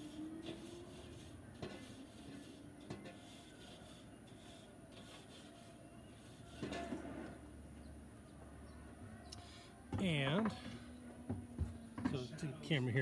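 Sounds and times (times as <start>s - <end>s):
scraper on metal grill grate: 0.0s - 7.4s.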